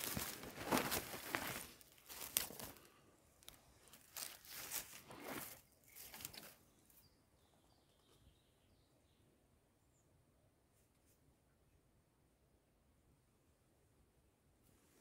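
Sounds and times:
dry leaves rustling and crunching: 0:00.0 - 0:06.6.

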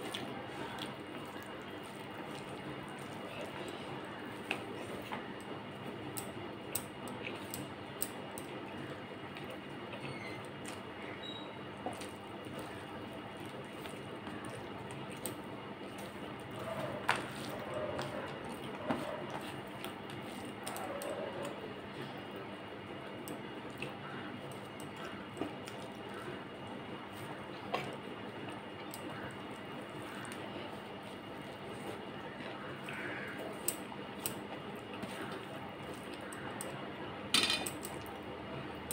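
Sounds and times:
chewing: 0:00.0 - 0:22.2, 0:23.0 - 0:36.8
fingers squishing food: 0:00.0 - 0:37.1
fingers squishing food on plate: 0:11.8 - 0:21.6.

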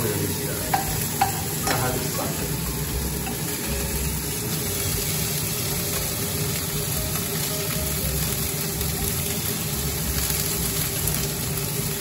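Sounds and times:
meatballs sizzling in oil: 0:00.0 - 0:12.0
metal spoon in frying pan: 0:00.7 - 0:12.0.

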